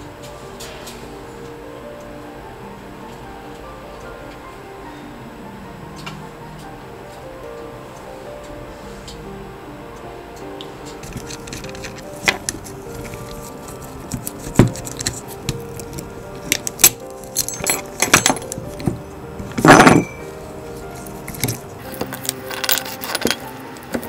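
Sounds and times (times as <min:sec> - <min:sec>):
background music: 0:00.0 - 0:24.0
steel spokes clinking against hub: 0:10.6 - 0:24.0.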